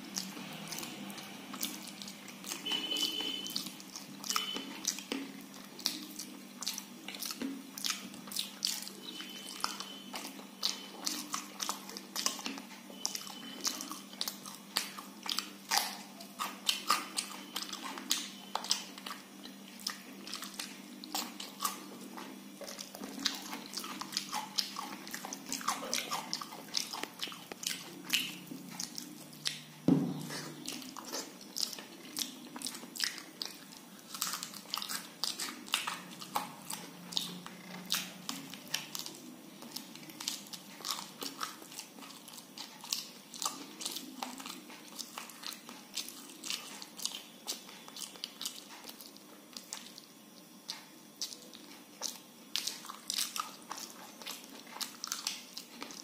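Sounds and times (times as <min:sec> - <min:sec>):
wet chewing and mouth clicks: 0:00.0 - 0:56.0
loud thump: 0:29.9 - 0:30.3.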